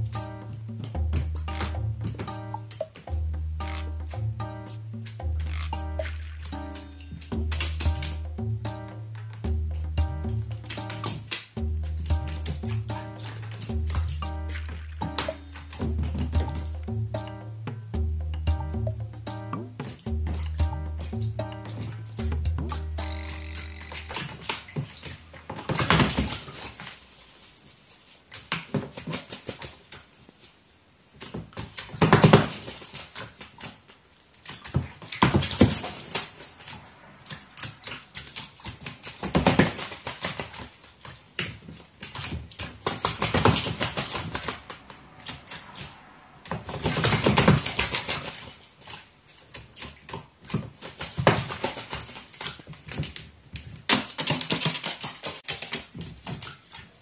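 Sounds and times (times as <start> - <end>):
water drops spattering: 0.0 - 17.5, 18.5 - 26.9
bird splashing and wing-flapping: 0.8 - 17.3, 19.8 - 57.0.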